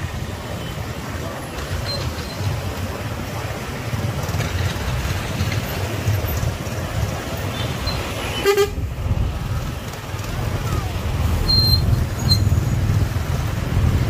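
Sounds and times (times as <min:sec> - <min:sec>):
traffic rumble: 0:00.0 - 0:14.0
vehicle horn toot: 0:08.3 - 0:08.8.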